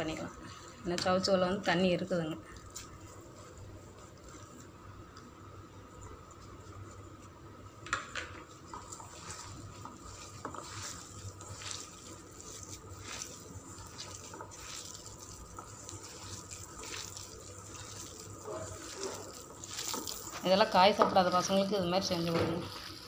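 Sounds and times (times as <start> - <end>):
hand squelching wet mixture: 1.4 - 4.8, 8.5 - 23.0.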